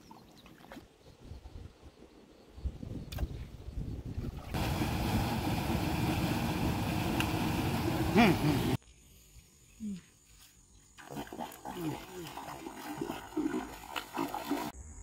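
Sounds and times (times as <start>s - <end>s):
water gushing into channel: 4.3s - 8.8s, 11.0s - 14.8s.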